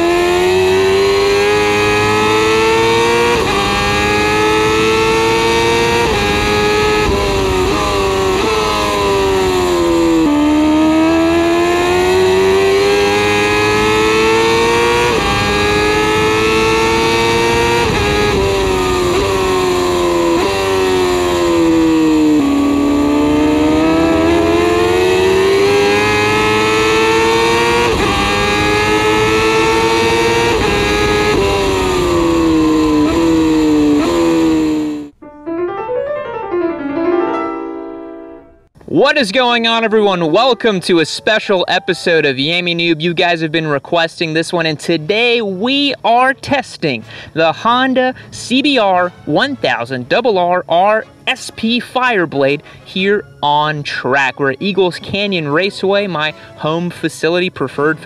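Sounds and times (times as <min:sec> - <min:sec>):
motorcycle engine revving through gears: 0:00.0 - 0:35.2
short piano jingle: 0:35.2 - 0:38.6.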